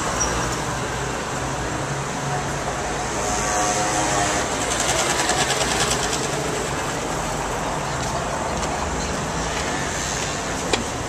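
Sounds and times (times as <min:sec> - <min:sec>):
street traffic noise: 0:00.0 - 0:11.0
motor scooter passing: 0:03.8 - 0:07.1.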